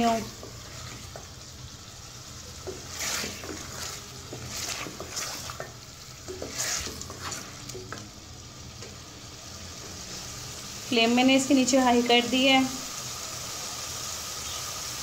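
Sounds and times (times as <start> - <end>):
spatula scraping pot: 0.0 - 1.4, 2.6 - 8.1
food sizzling: 0.0 - 15.0.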